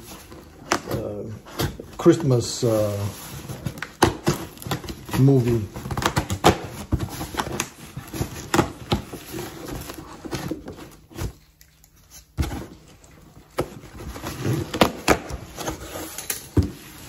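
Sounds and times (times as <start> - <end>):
rustling of cardboard and tape: 0.0 - 17.0
scissors cutting cardboard box: 3.4 - 11.4.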